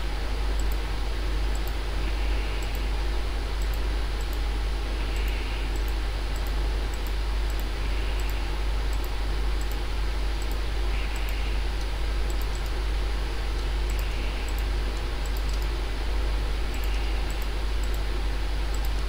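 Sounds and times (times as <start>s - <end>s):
low electrical hum and hiss: 0.0s - 19.0s
computer mouse clicks: 3.6s - 4.4s, 5.1s - 9.8s, 10.4s - 12.8s, 13.5s - 15.7s, 16.7s - 18.0s, 18.7s - 19.0s.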